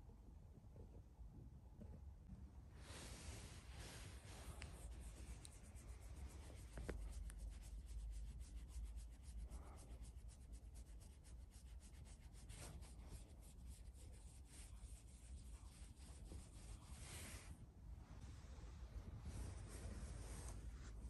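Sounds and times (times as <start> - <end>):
fingers scratching cat fur: 2.9 - 17.6.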